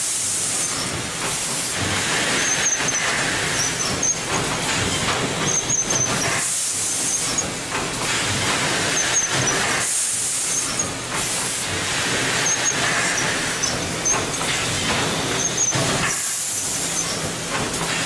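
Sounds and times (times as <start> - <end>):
air hiss bursts: 0.0 - 7.3, 8.0 - 18.0
packing machine mechanical din: 0.0 - 18.0
short high squeaks: 5.5 - 6.4.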